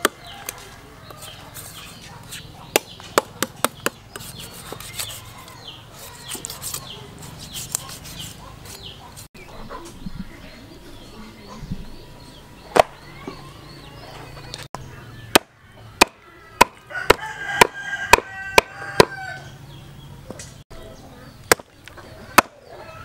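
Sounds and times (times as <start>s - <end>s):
birds chirping: 0.0s - 23.0s
knife cutting and scraping meat: 0.3s - 2.5s, 3.8s - 9.3s.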